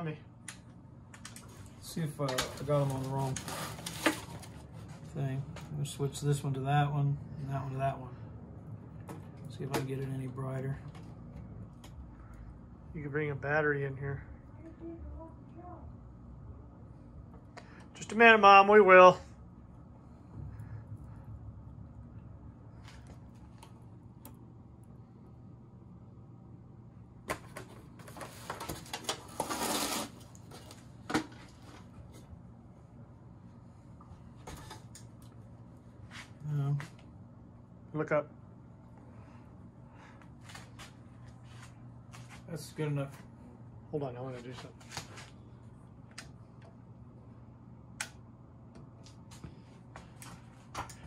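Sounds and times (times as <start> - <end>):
faint steady low hum: 0.0 - 51.0
scraping rustle: 2.3 - 5.2, 28.1 - 30.8.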